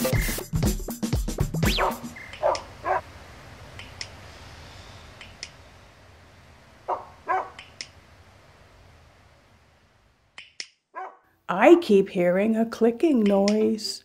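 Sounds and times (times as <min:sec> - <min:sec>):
dog barking: 0:01.7 - 0:03.1, 0:06.9 - 0:07.6, 0:11.0 - 0:11.2.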